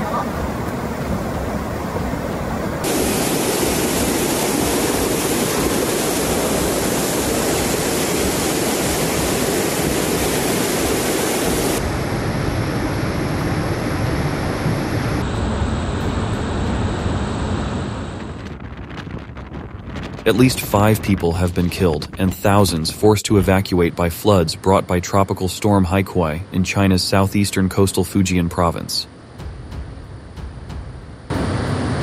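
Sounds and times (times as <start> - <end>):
rushing floodwater: 0.0 - 12.3.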